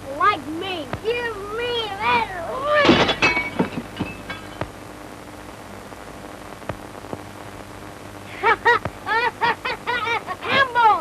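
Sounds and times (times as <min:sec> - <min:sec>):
child speaking: 0:00.0 - 0:02.9, 0:09.1 - 0:11.0
faint steady hum: 0:00.0 - 0:11.0
film soundtrack hiss and crackle: 0:00.0 - 0:11.0.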